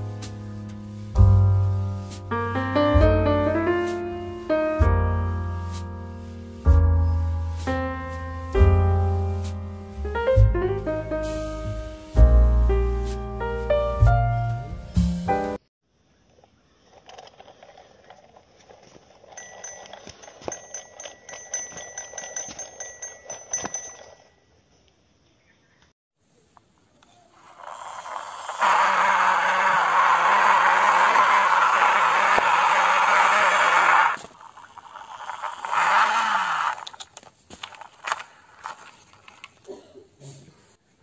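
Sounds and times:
plastic toy clicks: 16.9s - 18.8s
plastic toy tracks scraping: 16.9s - 20.5s, 27.4s - 39.6s
toy bell dinging rapidly: 19.2s - 24.4s.

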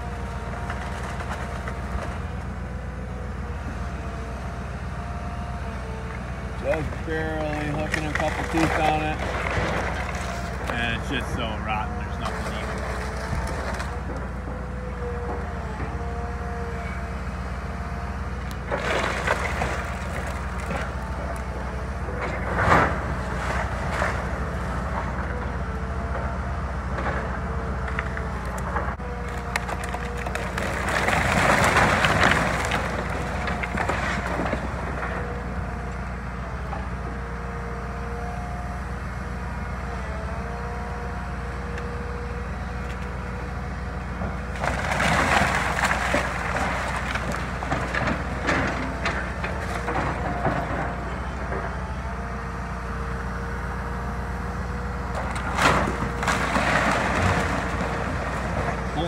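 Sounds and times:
timbers cracking and splintering: 0.0s - 3.2s, 6.5s - 16.6s, 18.4s - 26.3s, 26.9s - 35.8s, 44.2s - 52.3s, 55.0s - 59.0s
excavator engine whining: 0.0s - 59.0s
boards collapsing crash: 18.7s - 20.9s, 29.6s - 34.7s, 44.6s - 51.0s, 55.3s - 59.0s.

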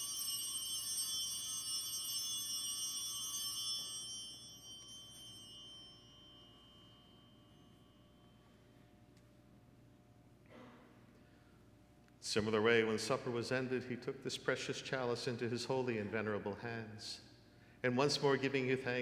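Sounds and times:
altar bells ringing: 0.0s - 9.0s.

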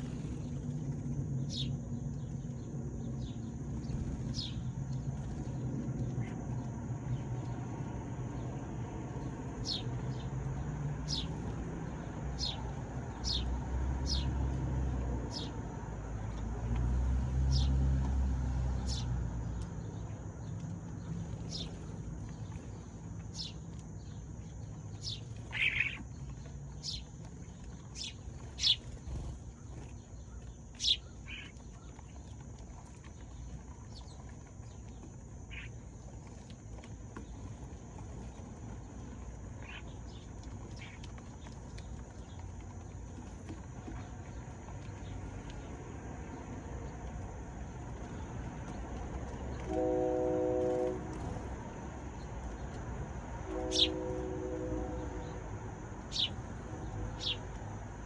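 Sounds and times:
sparrow chirping: 1.4s - 4.7s, 9.6s - 10.3s, 11.0s - 11.4s, 12.0s - 14.3s, 15.3s - 15.6s, 17.5s - 17.7s, 18.8s - 19.1s, 21.4s - 31.9s, 35.5s - 35.7s, 39.6s - 41.0s, 53.7s - 54.0s, 56.1s - 56.4s, 57.1s - 57.4s.

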